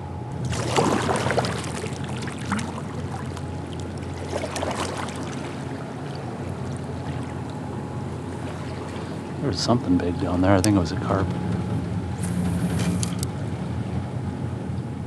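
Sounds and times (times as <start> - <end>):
river current rushing: 0.4 - 9.7
kayak paddle splashing: 0.4 - 9.8.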